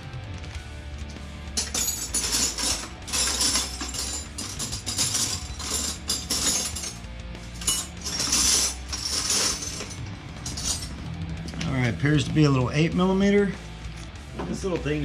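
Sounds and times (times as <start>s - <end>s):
metal hand tools clinking: 1.6s - 11.0s.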